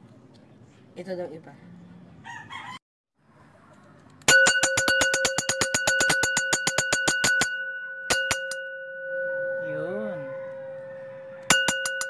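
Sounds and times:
metal bell ringing rapidly: 0:04.3 - 0:10.4, 0:11.4 - 0:12.0.

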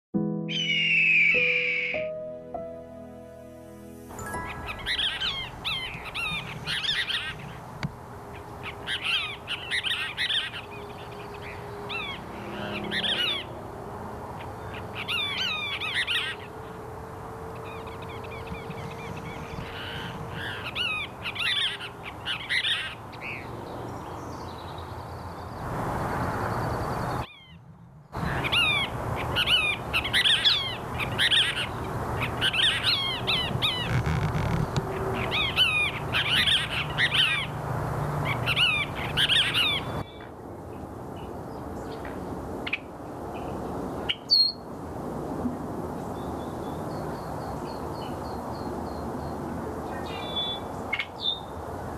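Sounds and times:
birds chattering calls: 0:04.2 - 0:13.6, 0:17.6 - 0:23.5, 0:28.2 - 0:40.3.

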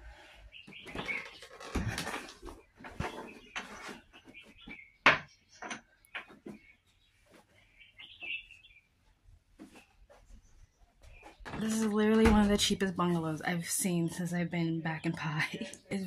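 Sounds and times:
small birds chirping: 0:00.2 - 0:12.2.

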